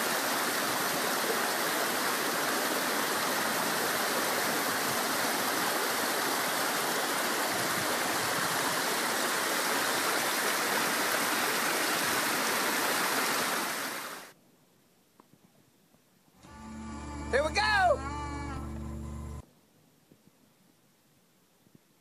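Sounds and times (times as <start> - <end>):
creek splashing over rocks: 0.0 - 14.3.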